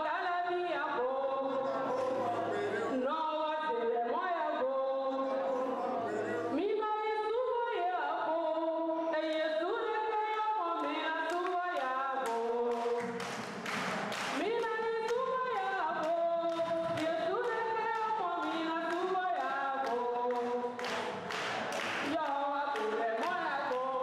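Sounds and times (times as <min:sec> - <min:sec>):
woman singing into a microphone: 0:00.0 - 0:02.0, 0:02.9 - 0:05.3, 0:06.5 - 0:13.2, 0:14.4 - 0:21.0, 0:22.0 - 0:24.0
hand claps keeping time: 0:10.8 - 0:24.0.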